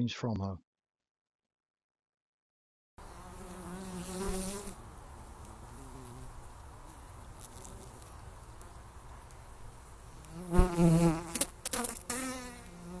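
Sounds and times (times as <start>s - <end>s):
bees buzzing: 3.0s - 8.6s, 10.1s - 13.0s.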